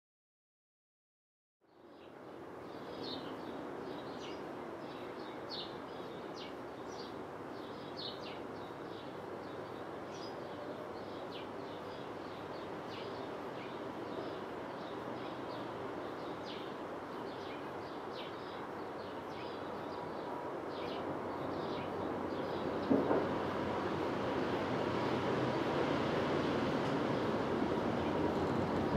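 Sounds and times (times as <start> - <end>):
small birds chirping: 1.6 - 26.0, 26.8 - 28.9
distant jet engine rumble: 19.6 - 28.9.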